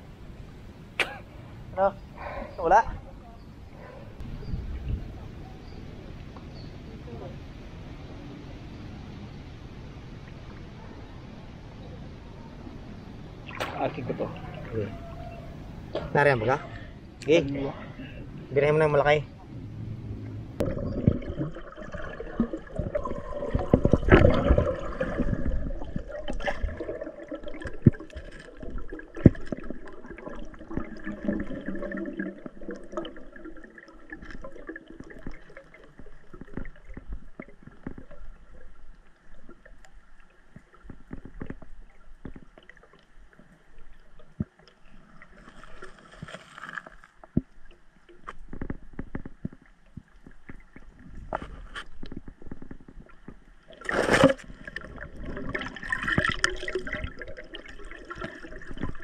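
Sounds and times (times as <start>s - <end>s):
water gurgling and sloshing: 0.0s - 59.0s
rush of water: 4.3s - 19.2s, 19.8s - 53.1s, 53.7s - 59.0s
small clicks and knocks: 40.5s - 43.5s, 48.1s - 53.4s.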